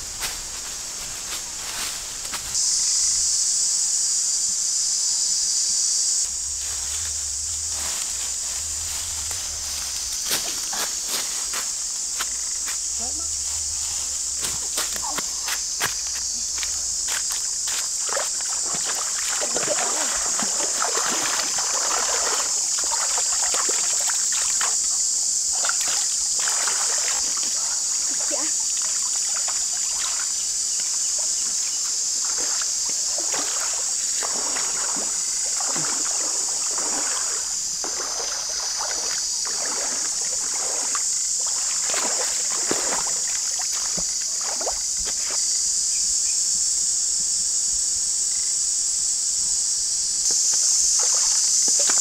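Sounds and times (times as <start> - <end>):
forest insects droning: 0.0 - 52.0
shallow river water splashing: 17.7 - 24.9, 25.5 - 31.5, 32.2 - 45.4, 50.4 - 52.0.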